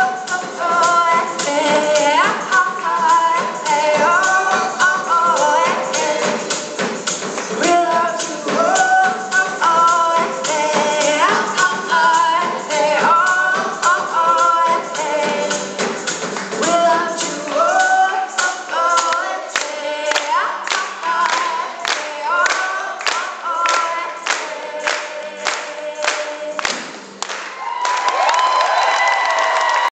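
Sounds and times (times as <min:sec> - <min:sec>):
voices singing in harmony: 0:00.0 - 0:27.1
percussive beat: 0:00.0 - 0:28.3.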